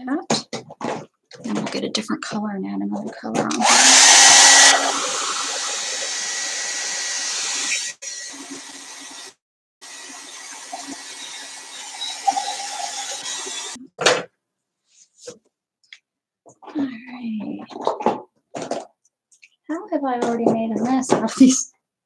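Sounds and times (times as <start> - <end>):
electric dryer blowing: 3.6 - 13.8.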